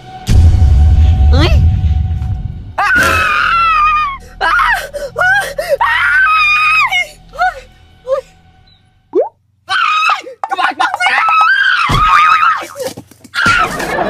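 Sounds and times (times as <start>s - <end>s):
person screaming in fright: 2.8s - 6.9s, 11.0s - 13.8s.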